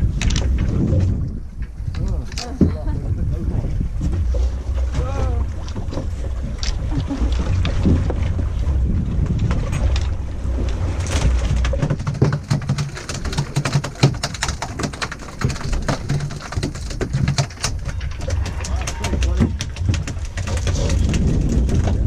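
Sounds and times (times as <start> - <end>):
wind buffeting microphone: 0.0 - 22.0
rapid sharp clicks: 12.1 - 17.8.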